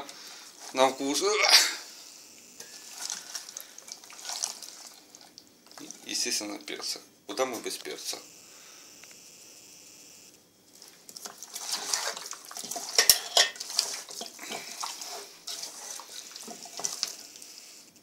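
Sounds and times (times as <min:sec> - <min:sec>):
wet squelching of raw meat: 0:02.7 - 0:06.1, 0:13.6 - 0:17.2.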